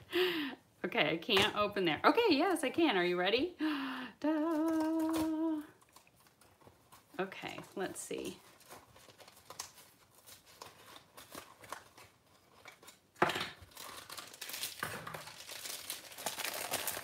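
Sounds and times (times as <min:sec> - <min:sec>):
plastic bag crinkling: 0:04.3 - 0:17.0
cardboard rustling: 0:04.4 - 0:17.0.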